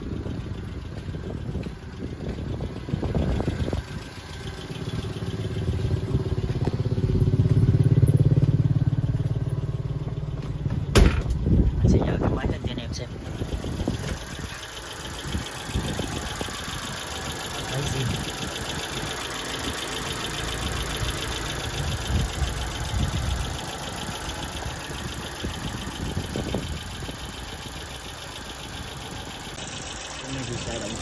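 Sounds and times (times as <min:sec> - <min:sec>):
petrol engine idling: 0:00.0 - 0:31.0
fast even ticking: 0:13.3 - 0:31.0.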